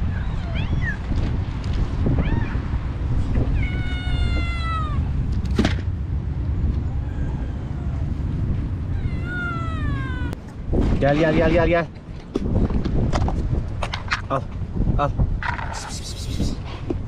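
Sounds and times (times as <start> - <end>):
cats meowing: 0.0 - 1.2, 2.1 - 5.2, 6.8 - 10.4.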